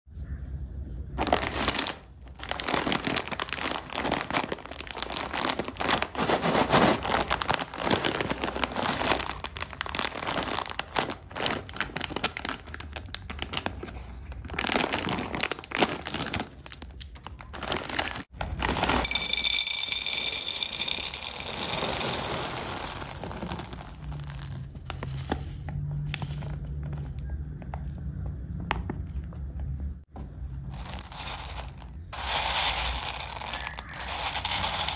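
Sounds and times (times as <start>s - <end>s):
plastic bag tearing: 1.2s - 13.9s, 14.5s - 19.1s, 30.8s - 34.9s
plastic bag crinkling: 1.2s - 25.6s, 30.6s - 34.9s.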